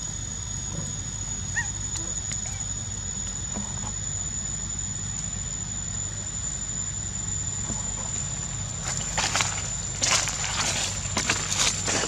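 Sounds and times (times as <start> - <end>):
dry leaves crackling and rustling: 8.8 - 12.0.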